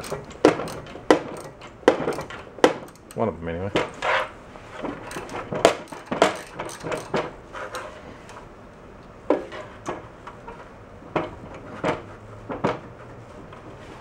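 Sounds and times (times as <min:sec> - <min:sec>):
wrench clicking on metal: 0:00.0 - 0:03.3, 0:05.0 - 0:08.4.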